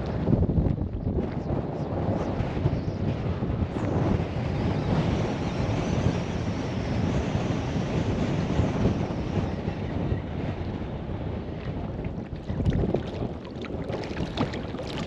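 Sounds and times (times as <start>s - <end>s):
wind buffeting microphone: 0.0s - 15.0s
small waves lapping: 11.6s - 15.0s.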